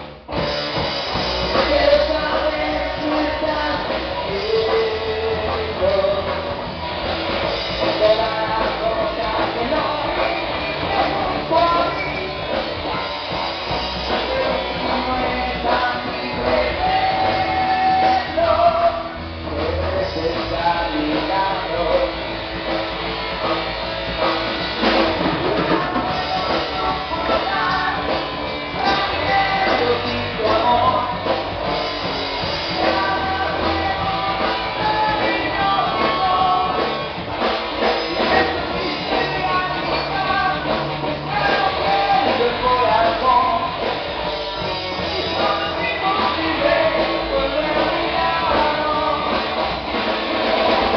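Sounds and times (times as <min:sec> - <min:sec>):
drums: 0:00.0 - 0:50.9
guitars: 0:00.0 - 0:50.9
person singing: 0:00.9 - 0:23.5, 0:24.2 - 0:50.9.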